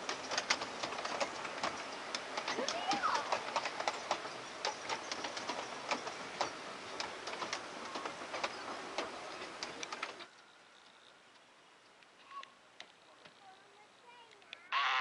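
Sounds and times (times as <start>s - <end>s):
train wheels clicking over rails: 0.0s - 11.5s
steady hiss: 0.0s - 14.8s.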